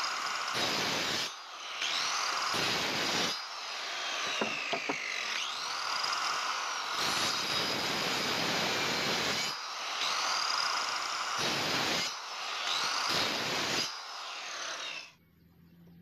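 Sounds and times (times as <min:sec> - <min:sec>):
circular saw whine: 0:00.0 - 0:15.2
saw cutting through wood: 0:00.0 - 0:15.2
short knocks: 0:04.3 - 0:05.1.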